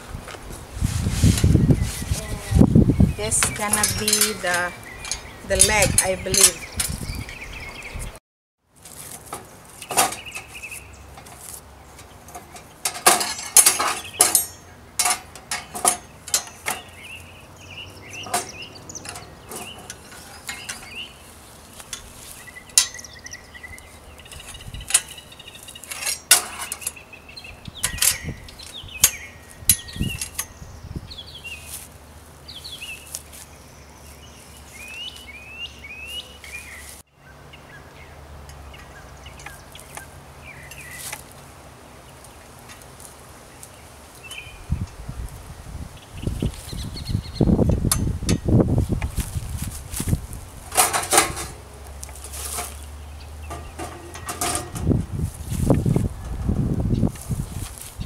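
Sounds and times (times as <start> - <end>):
birds chirping: 1.4 - 8.2, 9.4 - 49.2, 50.6 - 58.0
metal grill stand clanking: 3.2 - 7.0, 12.0 - 17.0, 18.2 - 21.2, 21.8 - 23.4, 24.3 - 27.0, 27.8 - 30.6, 50.6 - 52.8, 53.4 - 55.2.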